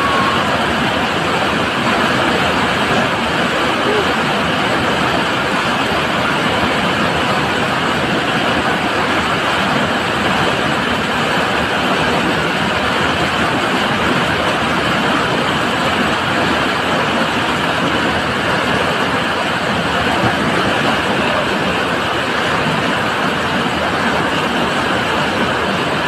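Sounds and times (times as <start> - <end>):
floodwater rushing through channel: 0.0 - 26.0.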